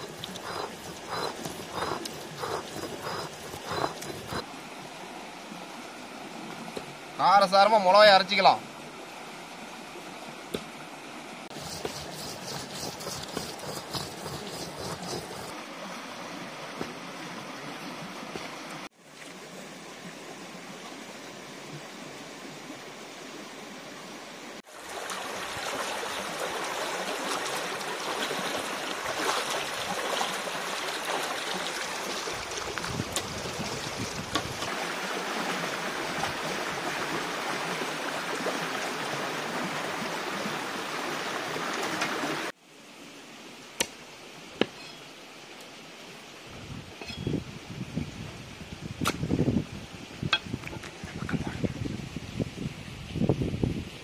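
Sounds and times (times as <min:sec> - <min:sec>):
stone roller grinding: 0:00.0 - 0:04.4, 0:11.5 - 0:15.5
stream water rushing and splashing: 0:00.0 - 0:53.3.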